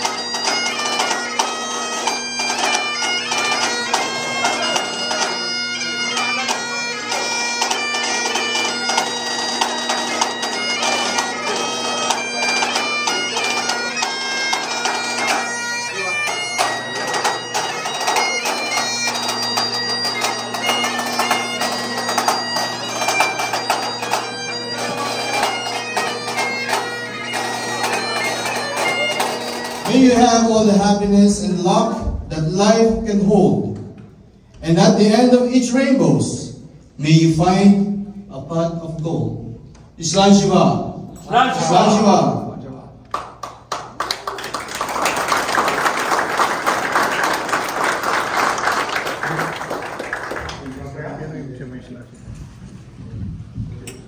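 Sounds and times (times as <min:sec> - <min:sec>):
bagpipes playing a tune: 0:00.0 - 0:33.3, 0:39.8 - 0:42.6, 0:43.2 - 0:50.8.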